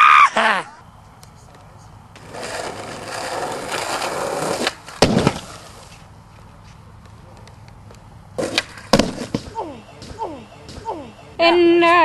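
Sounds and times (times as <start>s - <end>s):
skateboard wheels rolling on asphalt: 1.5s - 10.8s.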